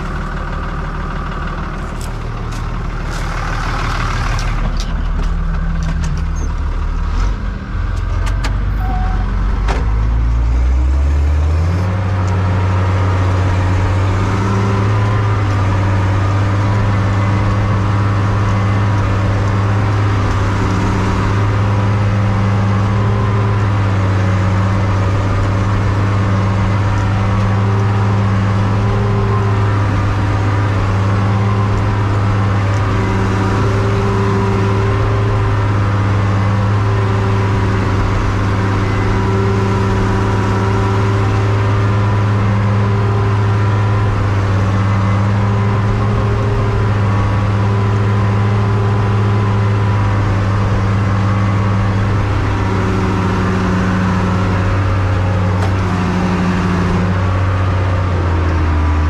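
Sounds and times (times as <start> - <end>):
tractor diesel engine revving: 0.0 - 59.0.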